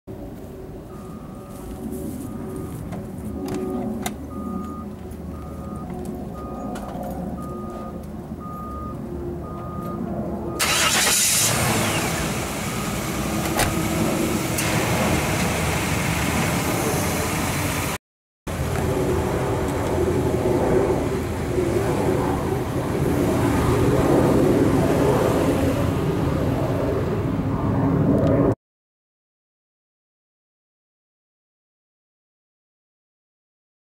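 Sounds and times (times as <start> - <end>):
truck engine starting and running: 0.8 - 27.5
repeating high beep: 7.4 - 10.0.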